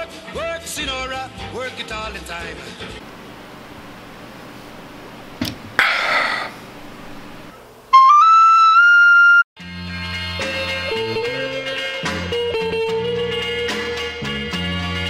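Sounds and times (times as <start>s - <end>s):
short breathy noise: 5.8s - 6.7s
tin whistle notes: 7.9s - 9.4s.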